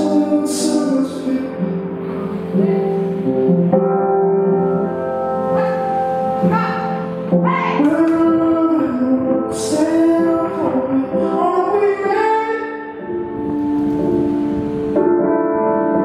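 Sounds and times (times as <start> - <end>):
woman singing slow melody: 1.4 - 3.2.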